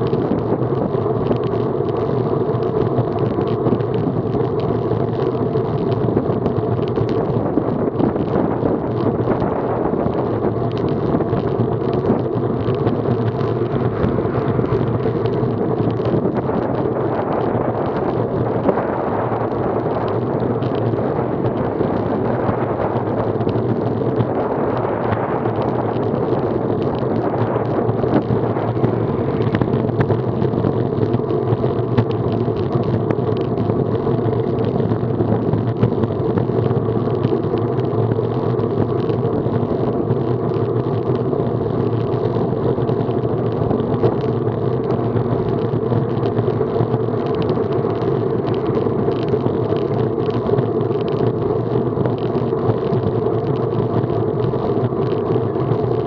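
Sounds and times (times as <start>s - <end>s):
bicycle tyre noise: 0.0s - 56.0s
low steady hum: 0.0s - 56.0s
wind rushing: 11.2s - 30.8s.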